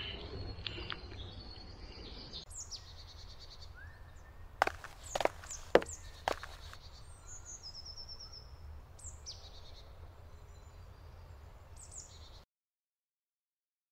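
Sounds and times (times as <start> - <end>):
birds calling: 0.0 - 9.4.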